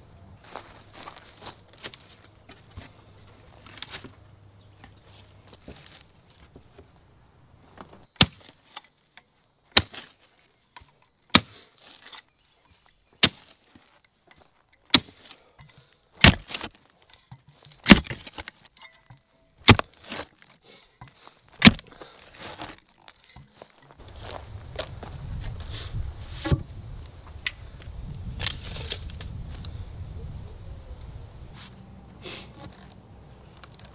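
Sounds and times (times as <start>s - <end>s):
digger scraping soil: 7.7s - 24.4s
post hole digger striking soil: 8.0s - 23.8s.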